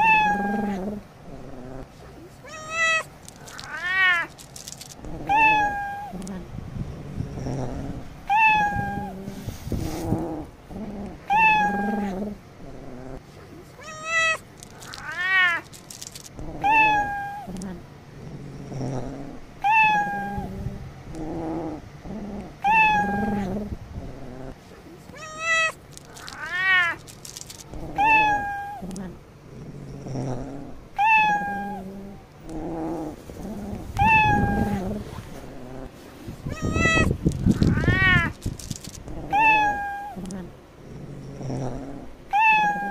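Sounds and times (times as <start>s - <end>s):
cat meowing: 0.0s - 0.8s, 2.4s - 6.2s, 8.3s - 9.2s, 11.3s - 12.2s, 13.8s - 17.6s, 19.6s - 20.5s, 22.6s - 23.6s, 25.1s - 29.1s, 31.0s - 31.8s, 33.9s - 35.0s, 36.4s - 40.4s, 42.3s - 42.9s.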